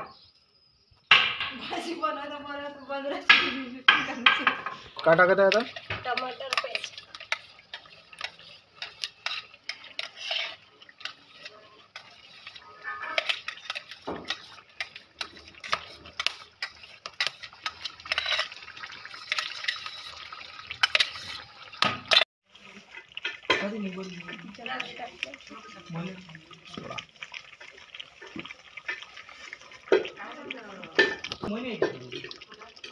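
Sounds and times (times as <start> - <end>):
metal jar knocking on pan: 3.2 - 6.9, 30.9 - 32.1
paste slopping into pan: 3.9 - 32.9.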